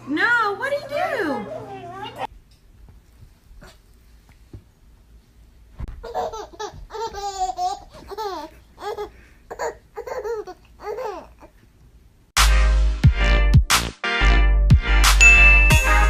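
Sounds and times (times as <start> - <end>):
baby laughing: 5.9 - 11.6.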